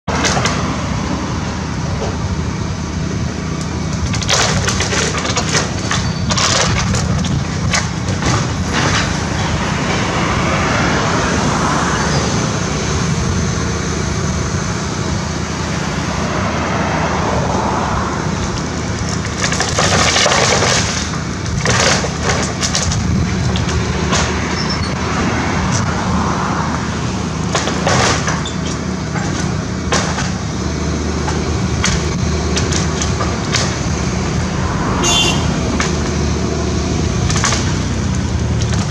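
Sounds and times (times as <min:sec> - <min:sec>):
excavator diesel engine running: 0:00.1 - 0:38.9
timbers cracking and splintering: 0:03.6 - 0:09.5, 0:18.4 - 0:24.6, 0:27.5 - 0:30.5, 0:31.2 - 0:34.4, 0:37.0 - 0:38.9.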